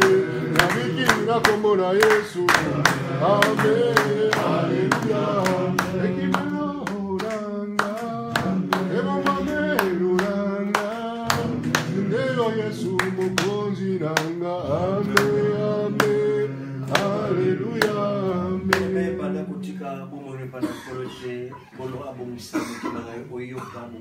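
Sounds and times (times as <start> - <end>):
hand clapping in time: 0.0 - 19.1
worshippers singing a hymn: 0.0 - 20.8.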